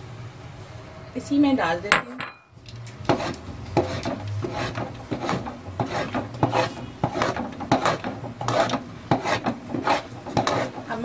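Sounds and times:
metal spoon scraping pot: 0:02.7 - 0:11.0.

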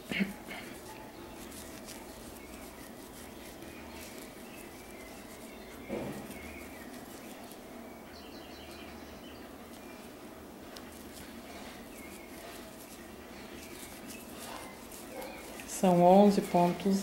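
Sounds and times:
low background hum: 0:00.0 - 0:17.0
soft thump: 0:05.9 - 0:06.3.

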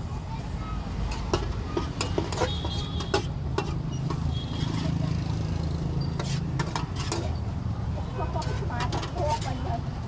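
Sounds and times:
metal spatula scraping wok: 0:01.1 - 0:09.8.

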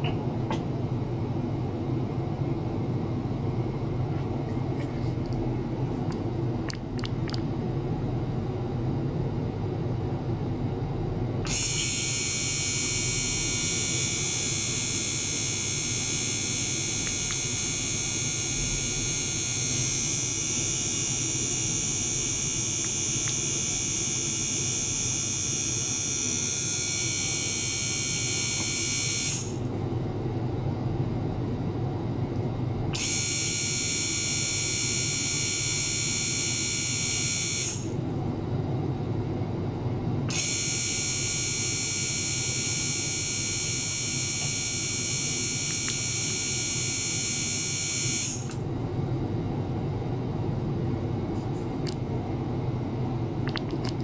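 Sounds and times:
water pump humming: 0:05.2 - 0:07.5, 0:53.4 - 0:54.0.

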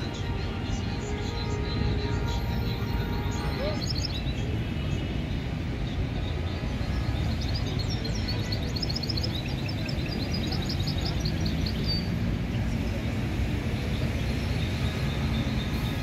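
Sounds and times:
bird singing high chirps: 0:01.1 - 0:04.5.

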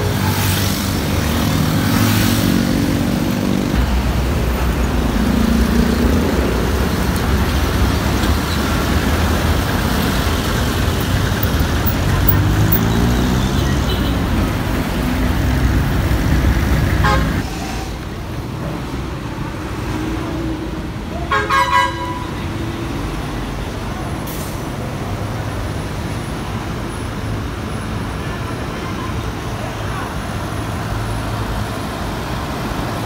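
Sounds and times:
truck diesel engine: 0:00.0 - 0:21.2
street traffic: 0:00.0 - 0:33.0
vehicle horn toots: 0:17.0 - 0:17.4, 0:21.3 - 0:22.3.

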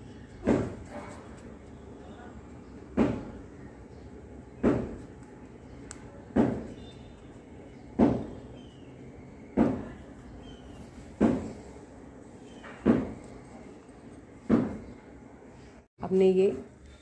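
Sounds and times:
dull thumps of dough punching: 0:04.6 - 0:05.2.

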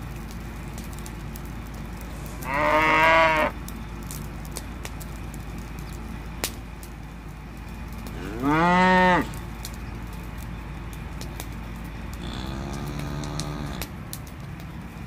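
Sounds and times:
steady low hum: 0:00.0 - 0:15.0
calf mooing: 0:02.4 - 0:03.5, 0:08.2 - 0:09.4, 0:12.2 - 0:13.8
faint clicks: 0:09.3 - 0:14.8.

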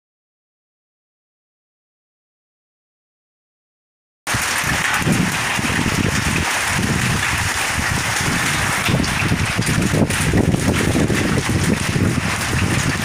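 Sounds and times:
heavy rain with hail: 0:04.3 - 0:13.0.

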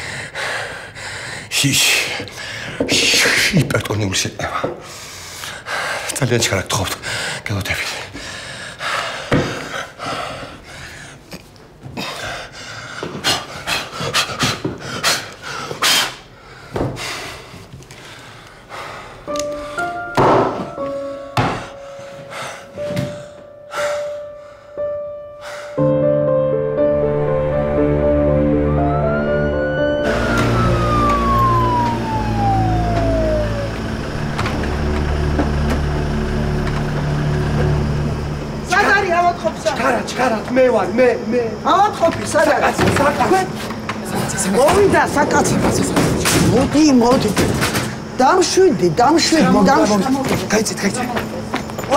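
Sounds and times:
man breathing hard: 0:00.0 - 0:02.9, 0:04.6 - 0:06.2, 0:08.1 - 0:11.3, 0:11.9 - 0:19.9, 0:21.4 - 0:25.9
ambulance siren winding down: 0:19.3 - 0:23.3, 0:26.7 - 0:40.1
engine rumbling: 0:26.7 - 0:40.5.

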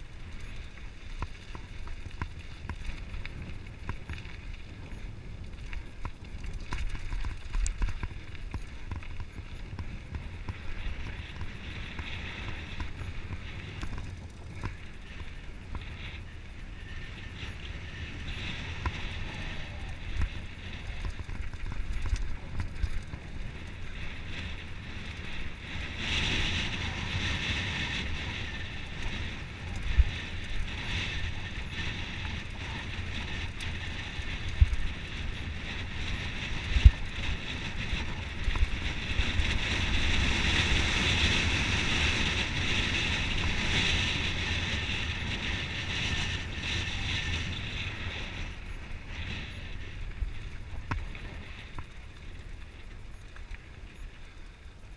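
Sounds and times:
bike rumbling and rattling: 0:00.0 - 0:54.9
wind buffeting microphone: 0:00.0 - 0:54.9.

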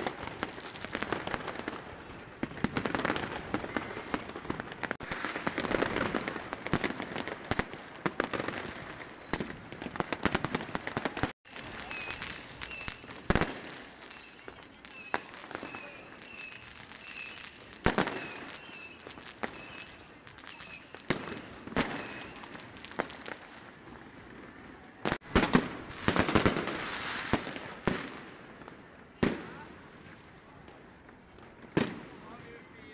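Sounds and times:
fireworks and firecrackers banging: 0:00.0 - 0:32.9.

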